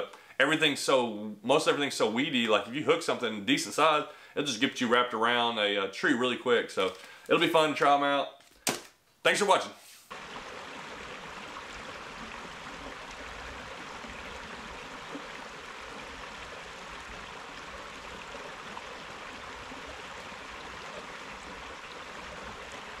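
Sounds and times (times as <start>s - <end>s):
water rushing over stones: 10.1s - 23.0s.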